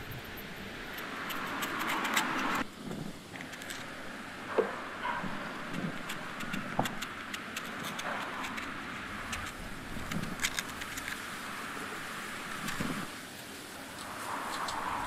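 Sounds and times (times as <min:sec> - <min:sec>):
steady background hiss: 0:00.0 - 0:15.0
knife scraping sweet potato peel: 0:01.0 - 0:02.6, 0:06.0 - 0:11.2.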